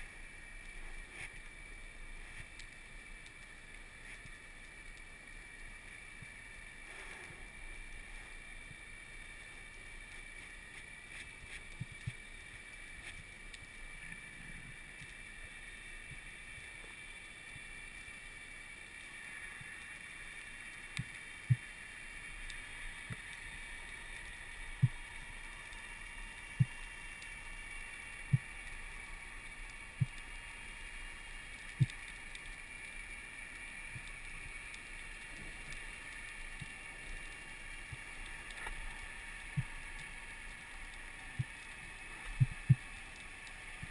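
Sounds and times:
underwater hiss: 0.0 - 43.9.

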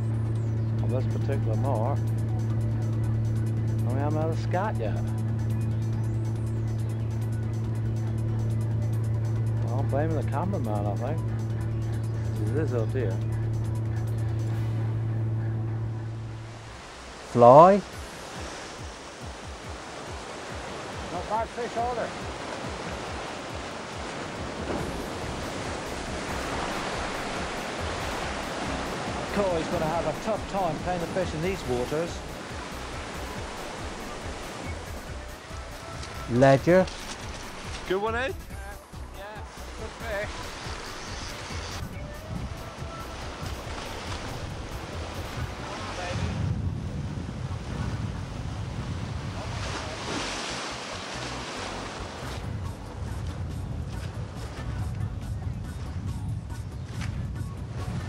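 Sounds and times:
waves breaking against rocks: 16.5 - 35.2, 39.4 - 41.6, 42.6 - 46.4, 47.3 - 52.4
wind rumbling on microphone: 22.1 - 37.9, 40.1 - 58.0.

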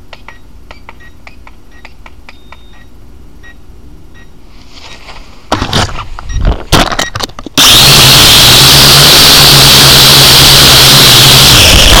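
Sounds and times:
small motor running with hum: 7.6 - 12.0.

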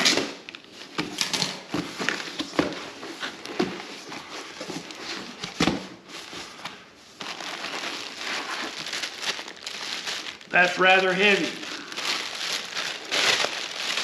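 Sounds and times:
plastic bag crinkling: 7.2 - 14.0.

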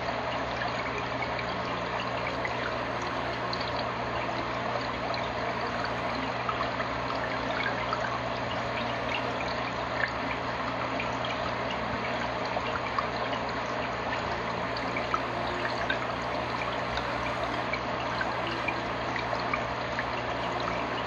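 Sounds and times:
steady low hum: 0.0 - 21.0
water trickling: 0.0 - 21.0
bubbles popping: 0.5 - 21.0.

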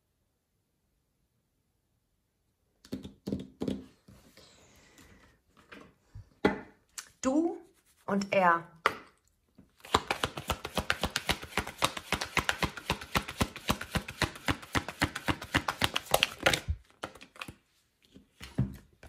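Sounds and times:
cards being shuffled: 9.8 - 18.5.

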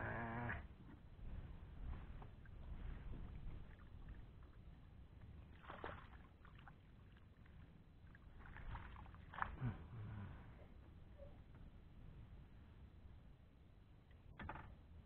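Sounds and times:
water sloshing and splashing: 1.9 - 9.9.

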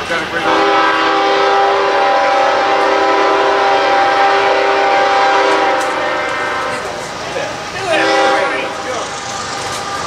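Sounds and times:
locomotive air horn blast: 0.4 - 7.1, 7.9 - 8.9.

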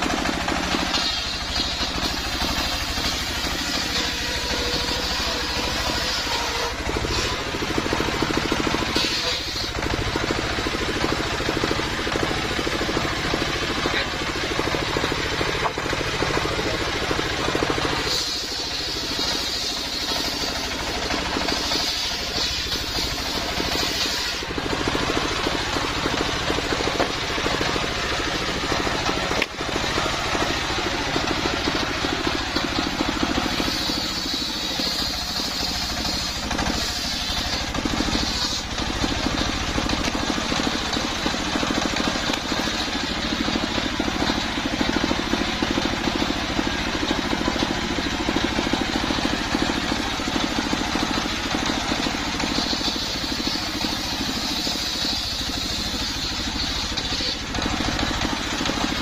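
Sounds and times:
diesel engine running: 0.0 - 59.0
saw blade cutting wood: 0.0 - 59.0.

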